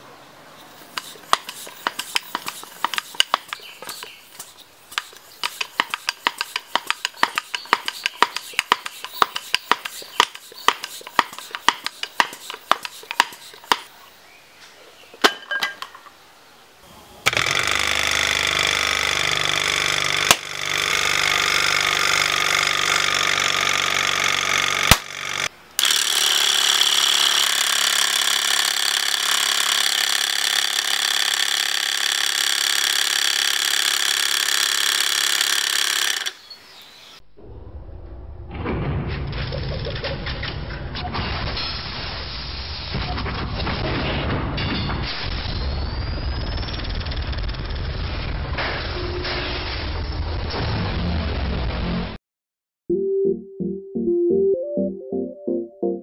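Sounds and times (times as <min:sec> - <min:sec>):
hand air pump strokes: 0:00.8 - 0:13.9, 0:17.3 - 0:36.5
air compressor drone: 0:17.3 - 0:31.5.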